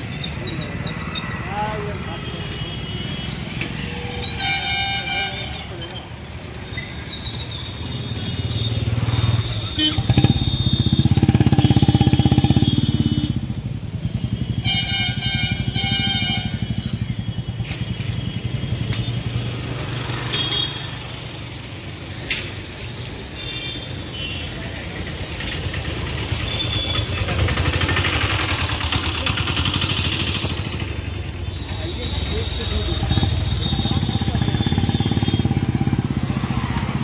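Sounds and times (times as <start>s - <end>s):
vehicle engine running: 25.6s - 32.5s.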